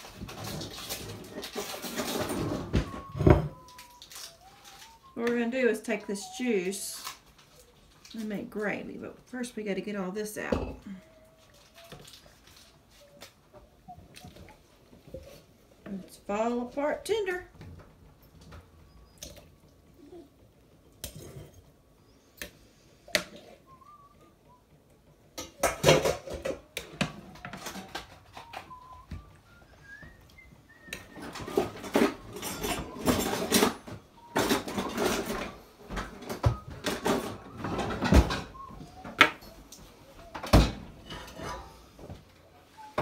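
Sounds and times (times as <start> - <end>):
metal utensils clinking on dishes: 31.2 - 35.6.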